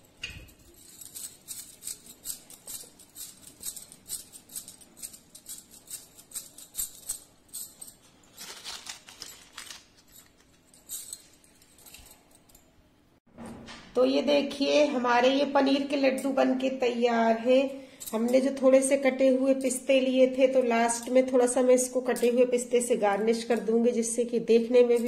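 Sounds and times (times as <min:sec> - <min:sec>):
scraping rustle: 0:00.5 - 0:12.2.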